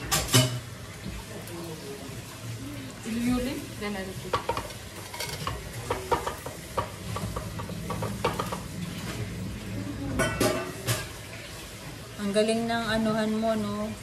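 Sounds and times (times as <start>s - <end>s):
utensils clattering: 4.4s - 9.2s.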